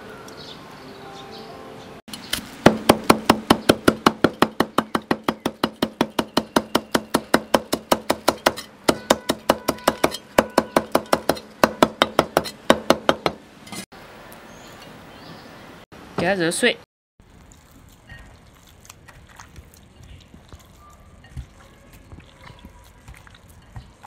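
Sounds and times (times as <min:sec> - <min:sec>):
cleaver chopping on wooden block: 0:02.6 - 0:13.4.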